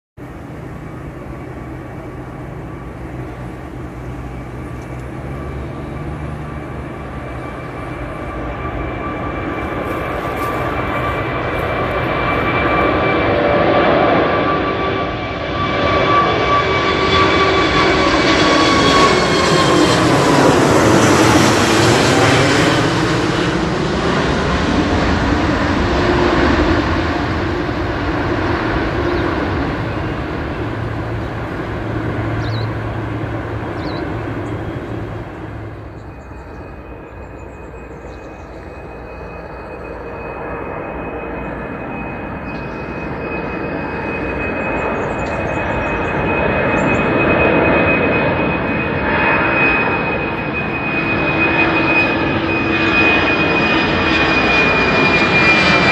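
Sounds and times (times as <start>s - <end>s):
jet engine whine: 0.2s - 55.9s
jet engines roaring: 0.2s - 55.9s.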